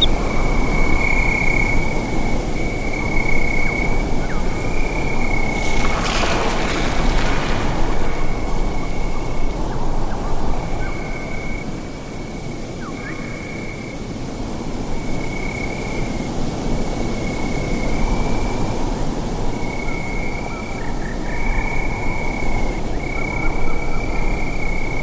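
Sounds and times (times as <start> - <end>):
high insect trill: 0.0 - 11.6
low rushing wind noise: 0.0 - 25.0.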